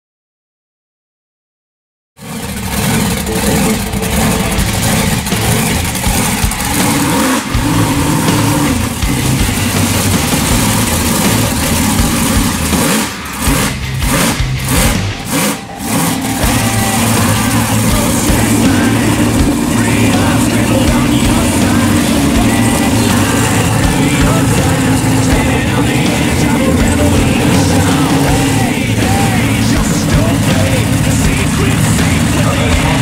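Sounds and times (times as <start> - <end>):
monster truck engine running: 2.2 - 33.0.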